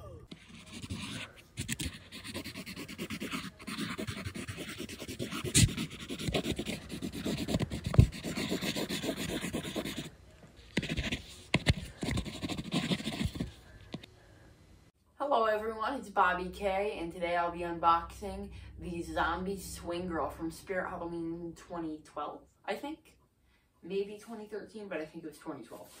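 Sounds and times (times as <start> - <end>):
pencil scratching on paper: 0.3 - 10.1, 10.7 - 14.0.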